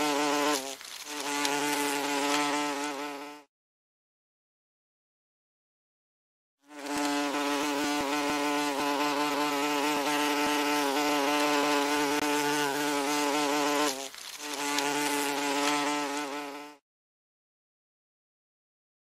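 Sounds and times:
wasp wings buzzing: 0.0s - 3.5s, 6.7s - 16.8s.

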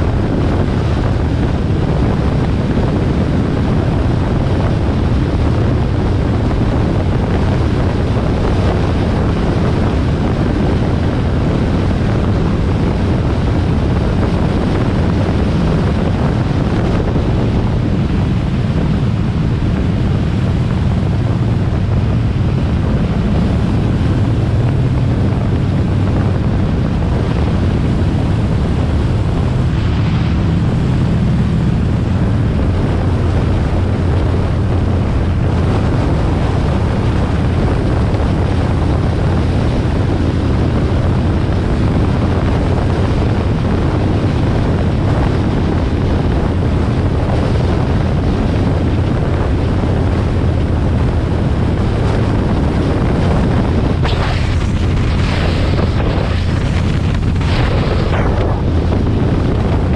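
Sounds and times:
motorcycle engine cruising: 0.0s - 59.9s
wind noise on microphone: 0.0s - 59.9s.

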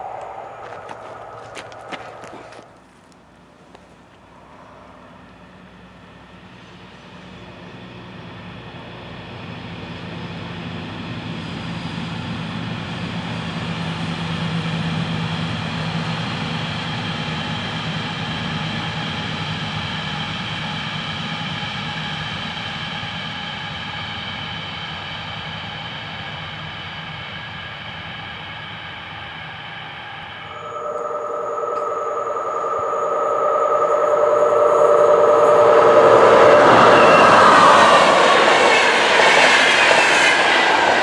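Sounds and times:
high steady tones: 0.0s - 2.8s, 30.3s - 41.0s
low hum: 0.0s - 5.8s, 30.2s - 39.2s
freight train rolling on rails: 0.0s - 41.0s.

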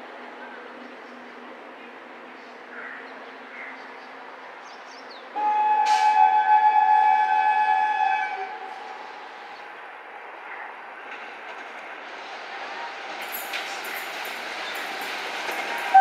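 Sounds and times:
train rumbling: 0.0s - 16.0s
train horn blast: 5.4s - 9.1s.

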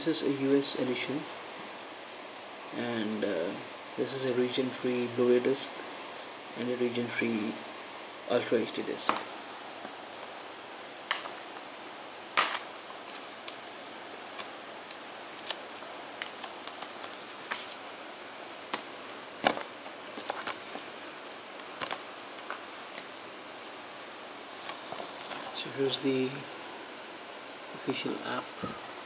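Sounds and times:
paper rustling: 12.4s - 17.8s, 18.4s - 23.3s, 24.5s - 25.7s.

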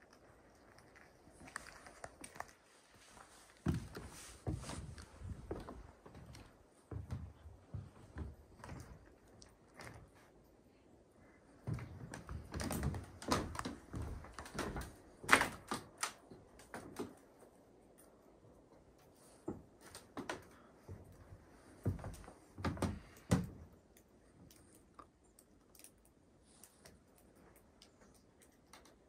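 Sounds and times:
footsteps on wooden boards: 3.2s - 9.1s, 11.6s - 15.9s, 19.4s - 23.6s.

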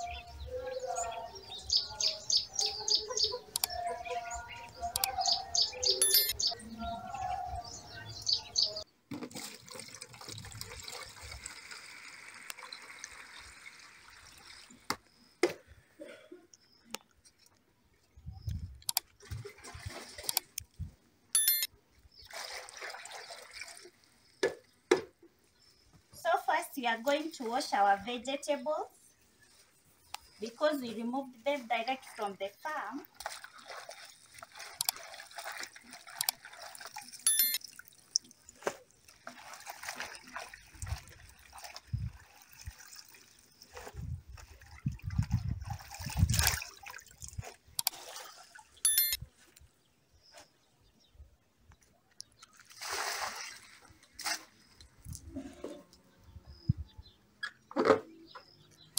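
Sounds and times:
water pouring and splashing: 9.1s - 15.3s, 19.1s - 20.9s, 22.2s - 24.8s, 32.0s - 48.9s, 52.4s - 55.8s
leaves swished in water: 37.9s - 48.8s, 52.5s - 54.8s.

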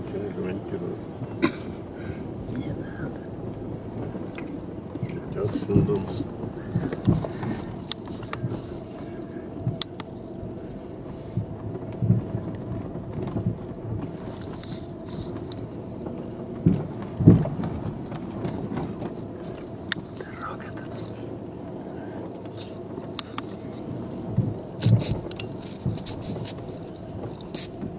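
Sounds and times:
engine and road hum: 0.0s - 27.9s
car jolting thumps: 5.2s - 9.9s, 11.4s - 21.4s, 22.2s - 27.9s.

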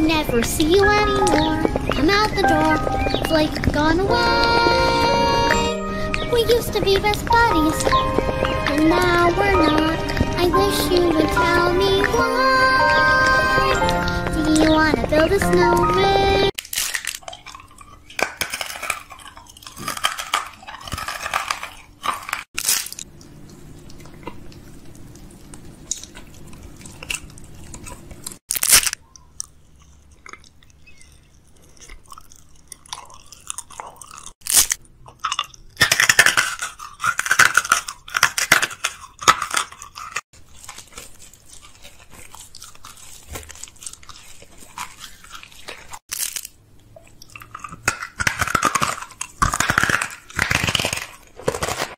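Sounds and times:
person crunching and chewing candy: 0.0s - 51.9s
candy wrapper crinkling: 16.5s - 23.2s, 25.5s - 51.9s.

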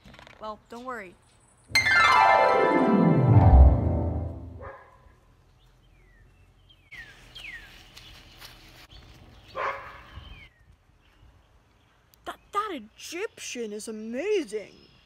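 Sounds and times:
dog barking: 4.6s - 5.1s, 9.6s - 10.1s.

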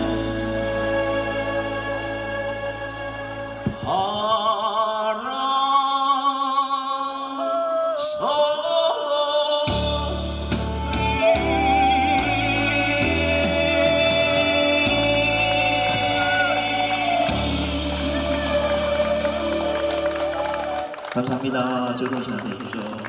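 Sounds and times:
keyboard backing track: 0.0s - 4.0s, 9.7s - 21.0s
bass: 0.0s - 4.3s, 9.7s - 21.3s
man singing with vibrato: 0.0s - 20.9s.

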